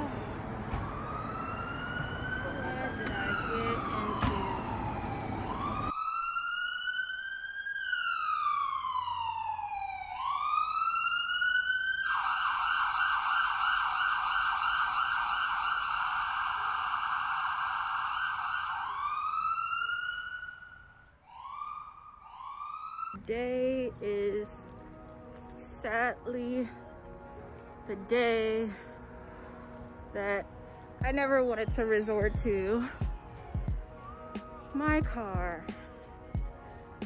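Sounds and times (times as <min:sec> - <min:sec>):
street noise: 0:00.0 - 0:06.0, 0:23.1 - 0:37.0
emergency vehicle siren: 0:00.0 - 0:31.0, 0:31.6 - 0:35.0.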